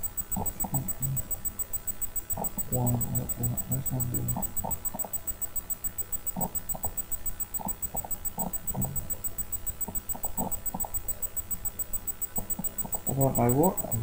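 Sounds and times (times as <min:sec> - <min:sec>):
faint high-pitched electronic tone: 0:00.0 - 0:14.0.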